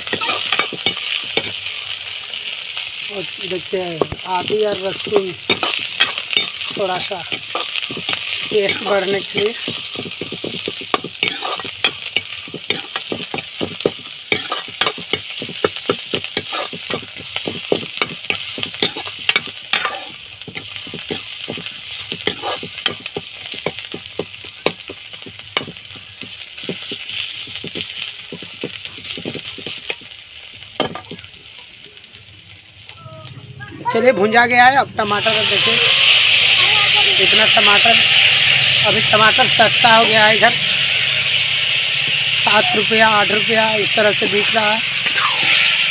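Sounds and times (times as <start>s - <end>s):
steel ladle scraping and knocking pan: 0.0s - 1.7s, 3.7s - 30.1s, 30.8s - 31.3s
vegetables sizzling in hot oil: 0.0s - 33.2s, 33.8s - 45.9s.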